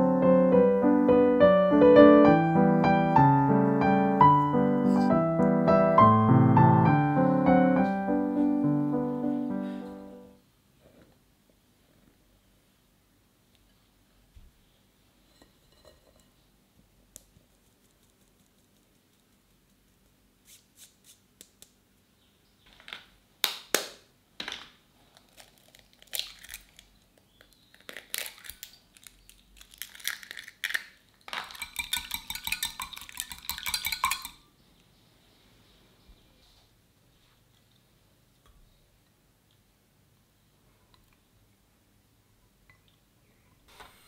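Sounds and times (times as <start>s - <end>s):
eggs being cracked: 25.2s - 34.4s
whisk clinking against glass: 31.5s - 34.4s.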